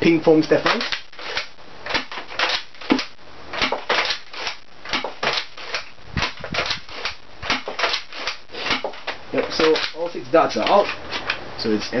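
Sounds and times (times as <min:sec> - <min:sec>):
toy blaster plastic clacks: 0:00.6 - 0:10.0.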